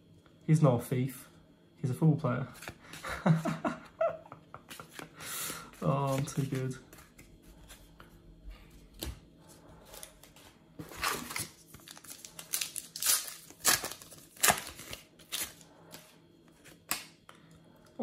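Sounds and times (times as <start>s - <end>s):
card pack wrapper crinkling and tearing: 10.9s - 16.0s.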